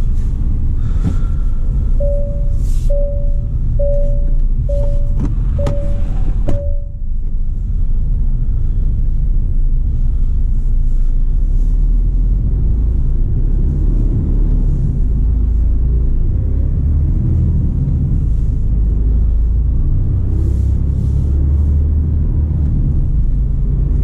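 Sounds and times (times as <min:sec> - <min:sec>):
lorry diesel engine rumble: 0:00.0 - 0:24.0
electronic chime: 0:02.0 - 0:07.0.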